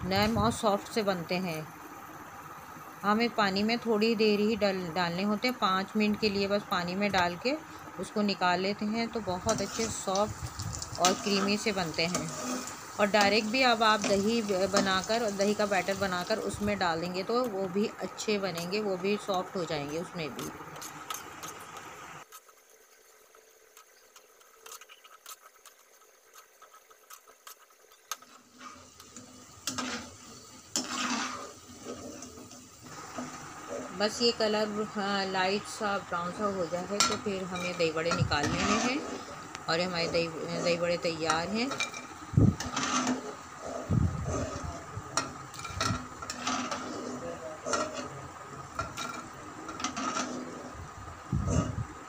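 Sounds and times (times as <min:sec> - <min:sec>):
fritters sizzling in oil: 0:00.0 - 0:52.0
metal spoon scraping a pan: 0:09.2 - 0:22.4, 0:24.5 - 0:35.0, 0:35.6 - 0:50.8.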